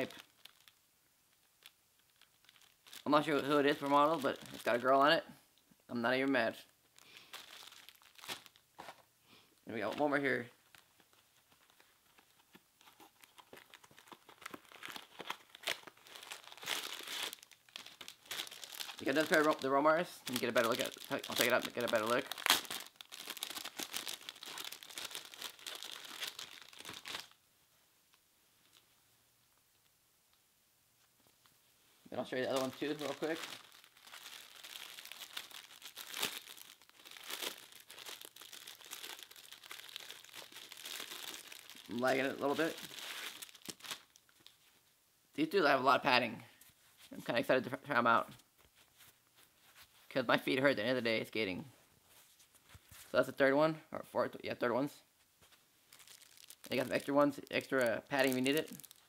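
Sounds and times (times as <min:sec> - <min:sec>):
packaging crinkling and tearing: 0:00.0 - 0:05.0, 0:07.0 - 0:08.6, 0:10.6 - 0:27.4, 0:32.4 - 0:44.6, 0:55.9 - 0:59.0.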